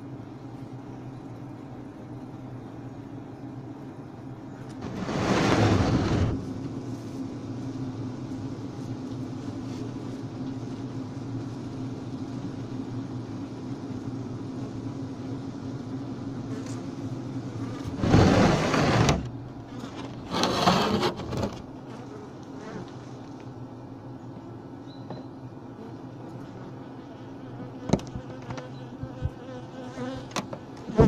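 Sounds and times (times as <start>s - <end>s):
honeybee colony humming: 0.0s - 31.0s
loud noisy bursts: 4.8s - 6.5s.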